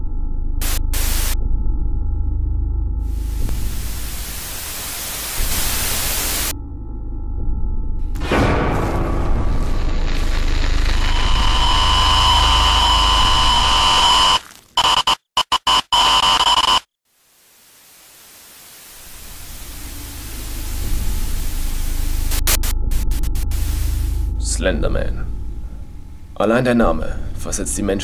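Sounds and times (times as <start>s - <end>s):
high whine: 0.0s - 6.6s, 8.0s - 26.4s
low hum: 0.0s - 14.4s, 19.0s - 27.5s
electronic static hiss: 0.6s - 1.4s, 3.1s - 6.5s, 9.0s - 24.2s.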